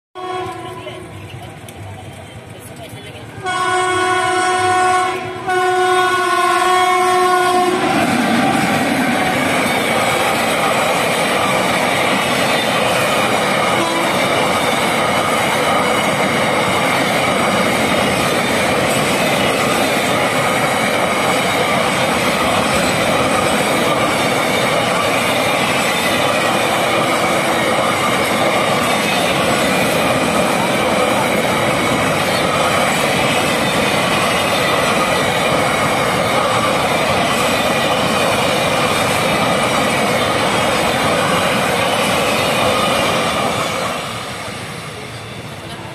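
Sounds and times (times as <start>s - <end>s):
locomotive air horn blasts: 0.2s - 1.0s, 3.4s - 7.8s, 13.8s - 14.3s
train wheels rolling on rails: 0.2s - 45.9s.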